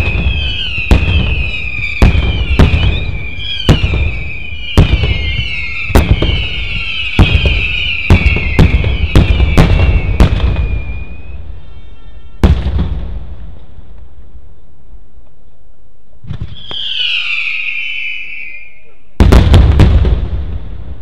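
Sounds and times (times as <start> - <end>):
fireworks banging: 0.0 - 11.8, 12.4 - 14.0, 16.2 - 21.0
firework whistle: 0.0 - 12.7, 16.4 - 19.3.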